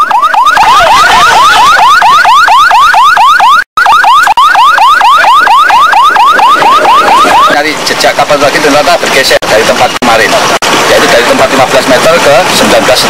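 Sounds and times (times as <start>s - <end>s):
electronic siren whooping: 0.0s - 7.8s.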